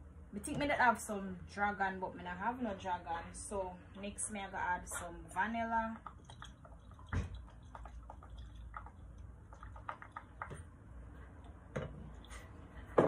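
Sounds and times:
liquid dripping into glass jug: 5.4s - 10.8s.

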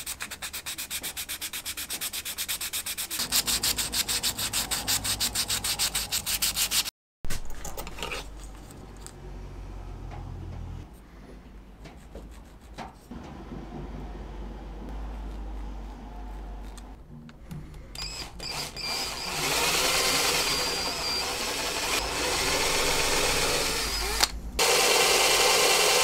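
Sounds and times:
hand sanding plastic edge: 0.0s - 6.9s.

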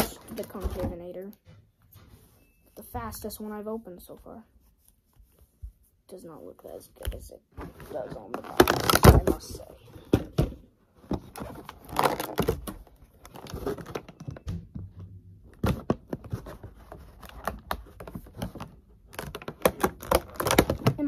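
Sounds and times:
plastic packaging crinkling: 7.9s - 9.7s, 11.3s - 14.4s, 16.3s - 21.0s.

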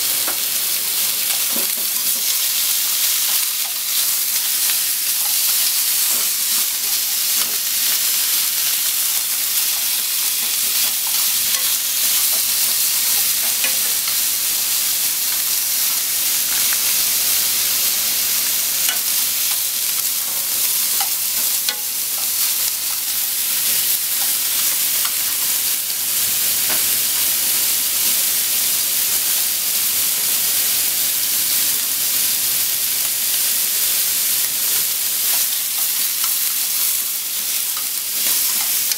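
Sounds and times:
pork sizzling in a frying pan: 0.0s - 38.9s.

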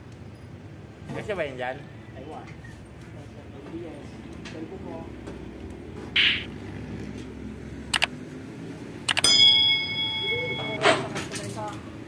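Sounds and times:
bell ding: 9.1s - 10.9s.

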